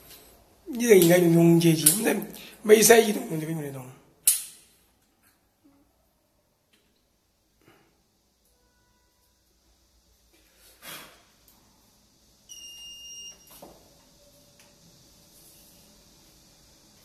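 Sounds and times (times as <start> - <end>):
faint steady hum: 0.0 - 17.0
sharp click: 4.2 - 4.7.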